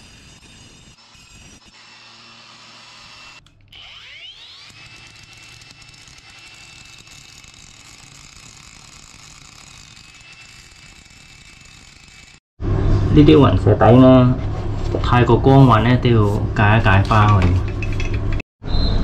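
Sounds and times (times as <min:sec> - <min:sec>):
power tool motor whining: 0:00.0 - 0:12.4.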